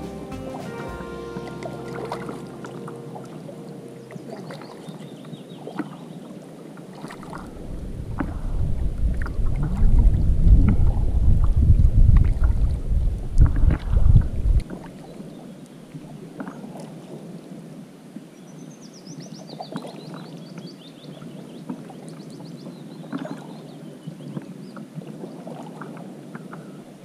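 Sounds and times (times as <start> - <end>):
wind rumbling against microphone: 1.6 - 18.4.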